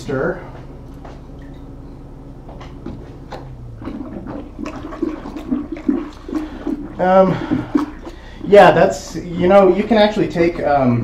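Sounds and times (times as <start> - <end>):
liquid sloshing and swirling: 2.9 - 10.2.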